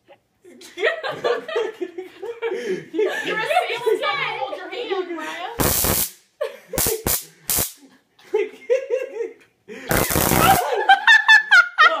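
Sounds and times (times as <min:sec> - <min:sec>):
laughter: 0:00.4 - 0:04.2, 0:06.4 - 0:12.0
stun gun crackling: 0:05.6 - 0:06.2, 0:06.8 - 0:07.8, 0:09.9 - 0:10.6.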